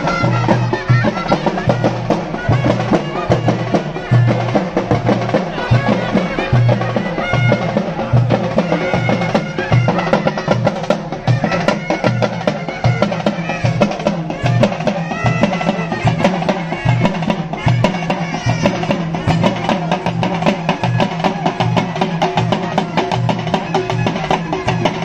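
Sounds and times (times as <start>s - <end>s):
frame drums and barrel drums: 0.0s - 25.0s.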